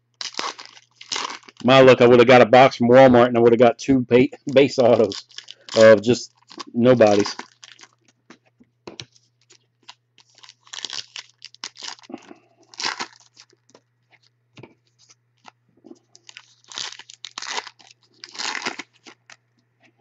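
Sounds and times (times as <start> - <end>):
cards rustling and clicking: 4.5 - 12.1.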